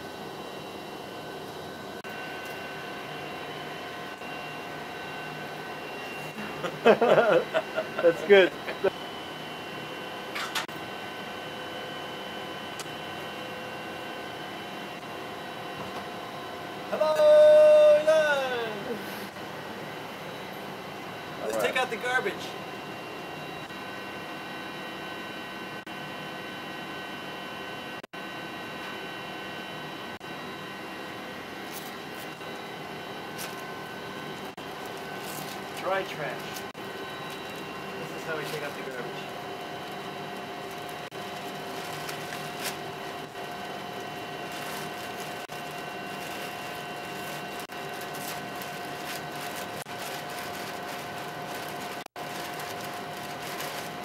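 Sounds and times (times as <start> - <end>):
ventilation fans humming: 0.0 - 54.0
trash bag crackling: 40.6 - 43.4, 44.4 - 54.0.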